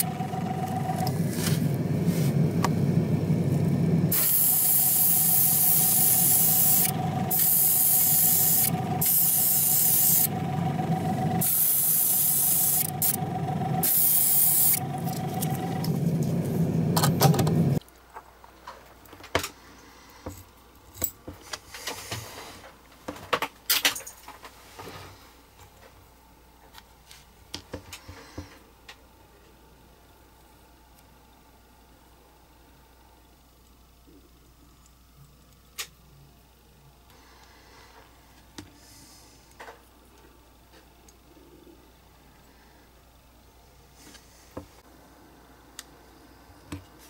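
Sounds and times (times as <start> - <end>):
motor hum: 0.0 - 17.8
airbrush spraying hiss: 4.1 - 13.2, 13.8 - 15.4.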